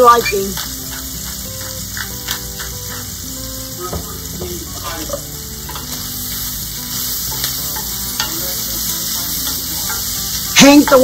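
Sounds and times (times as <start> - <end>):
vegetables sizzling in a skillet: 0.0 - 11.0
wooden spoon stirring a pan: 0.5 - 3.1.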